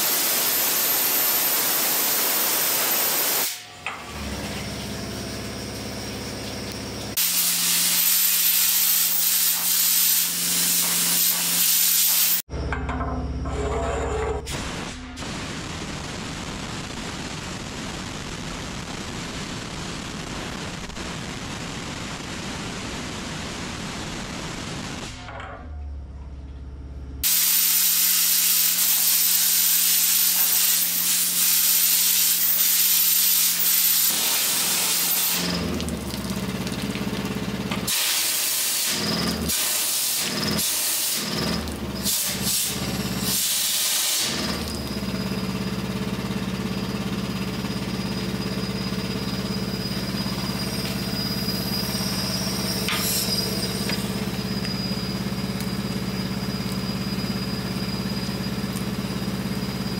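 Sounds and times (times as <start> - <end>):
high-pressure jet hissing: 0.0 - 3.6, 7.1 - 12.4, 27.2 - 36.2, 37.8 - 44.7, 48.0 - 58.6
motor running with high whine: 44.2 - 59.9.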